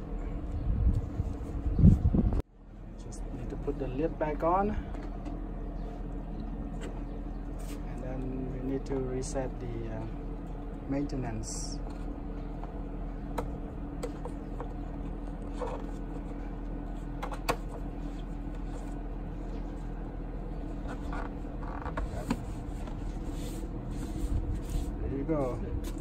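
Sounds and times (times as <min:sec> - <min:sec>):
steady low hum: 0:00.0 - 0:26.0
cloth rubbing over engine cover: 0:06.7 - 0:08.0, 0:15.0 - 0:26.0.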